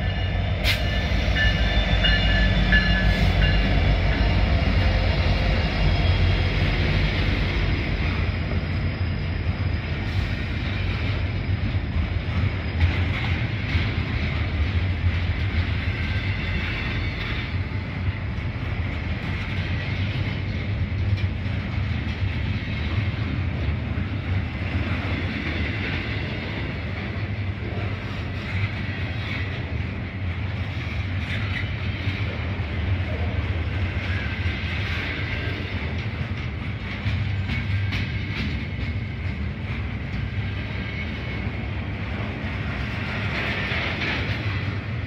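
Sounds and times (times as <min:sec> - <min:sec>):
freight train wheels rumbling: 0:00.0 - 0:45.0.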